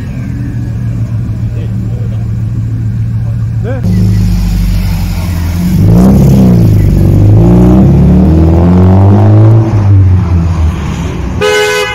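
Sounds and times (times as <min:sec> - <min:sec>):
racing car engine revving: 0:03.8 - 0:11.2.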